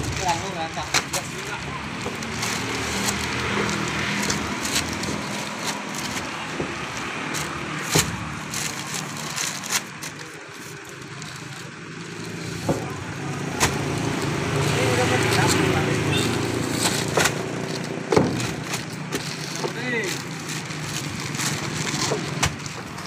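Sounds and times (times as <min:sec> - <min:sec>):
paper sacks thumping: 0:00.0 - 0:10.2, 0:12.6 - 0:23.0
paper rustling and scraping: 0:00.0 - 0:23.0.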